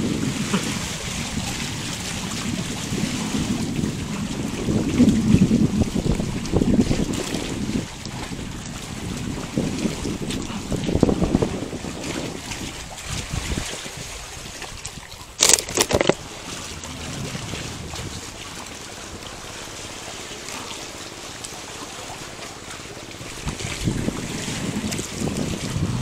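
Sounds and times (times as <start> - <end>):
wind noise on microphone: 0.0 - 19.6, 23.2 - 26.0
loud water splash: 15.3 - 26.0.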